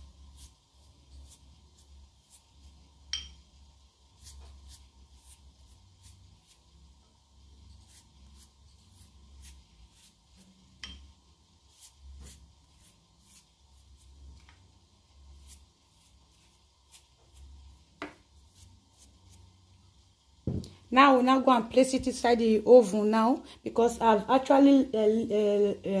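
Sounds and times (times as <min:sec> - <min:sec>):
pastry brush dabbing: 0:00.0 - 0:20.7.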